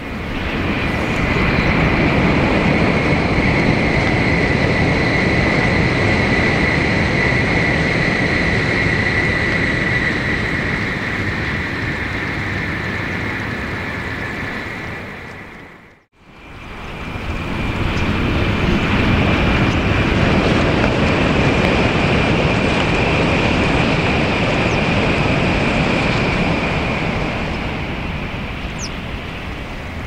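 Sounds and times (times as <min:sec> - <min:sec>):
bullet train passing at speed: 0:00.0 - 0:30.0.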